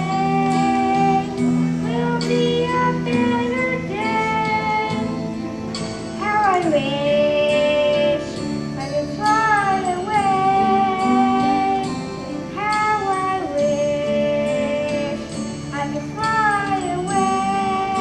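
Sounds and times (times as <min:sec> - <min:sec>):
child singing long notes: 0:00.0 - 0:05.1, 0:06.2 - 0:18.0
instrumental backing track: 0:00.0 - 0:18.0.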